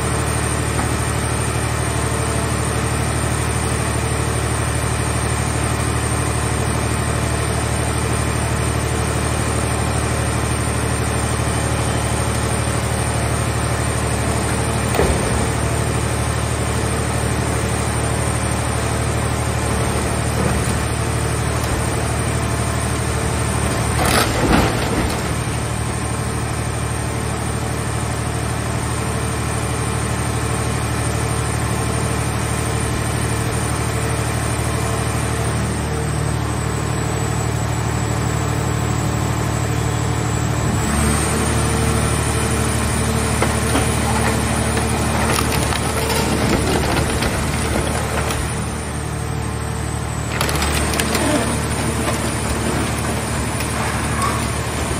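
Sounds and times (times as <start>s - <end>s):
hydraulic baler humming: 0.0s - 31.0s, 31.6s - 54.9s
loud metal clatter: 19.2s - 26.2s, 43.2s - 49.2s, 50.2s - 54.9s.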